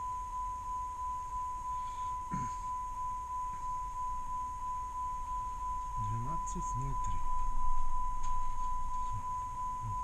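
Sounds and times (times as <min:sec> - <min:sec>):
high-pitched electronic tone: 0:00.0 - 0:10.0
low rumble: 0:02.9 - 0:10.0.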